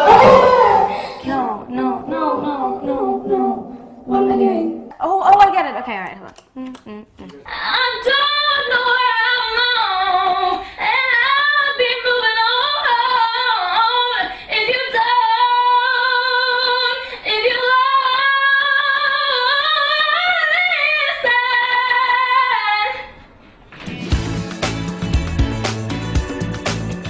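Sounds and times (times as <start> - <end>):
woman singing into a microphone: 7.5 - 23.1.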